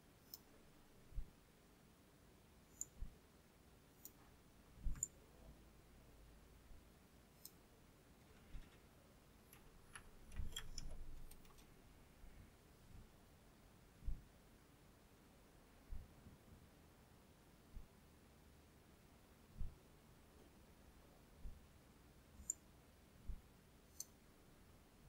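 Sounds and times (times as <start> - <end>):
computer mouse clicks: 0.2 - 0.5, 4.0 - 4.2, 4.8 - 5.2, 9.5 - 11.7, 22.4 - 22.6.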